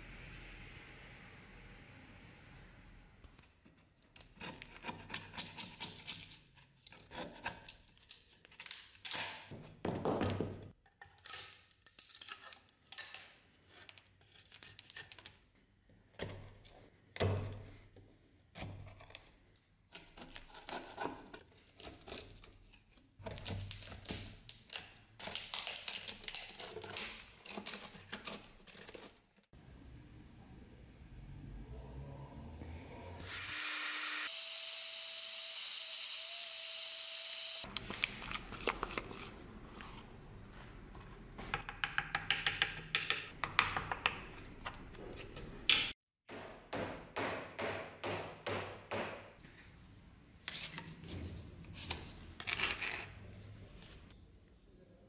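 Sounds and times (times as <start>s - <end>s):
tool scraping wood: 3.7s - 6.2s.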